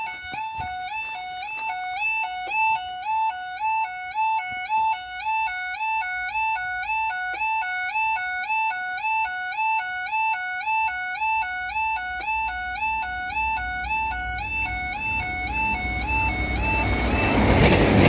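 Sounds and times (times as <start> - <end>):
level crossing two-tone alarm: 0.0 - 18.0
train rumble: 13.5 - 18.0.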